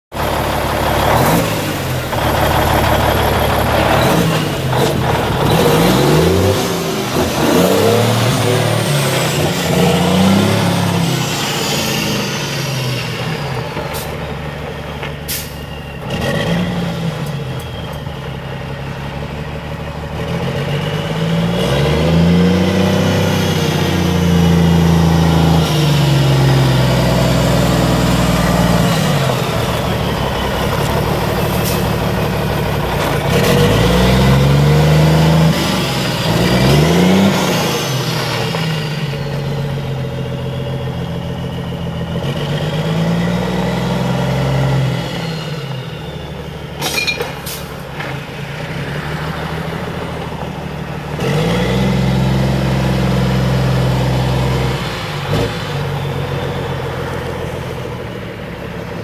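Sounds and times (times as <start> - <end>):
truck diesel engine revving: 0.1 - 59.0.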